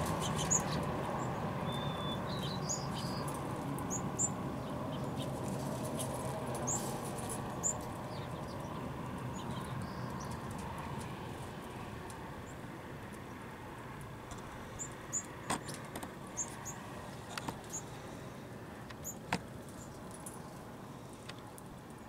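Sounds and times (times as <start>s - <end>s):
sparrows chirping: 0.0s - 10.7s, 14.4s - 20.6s.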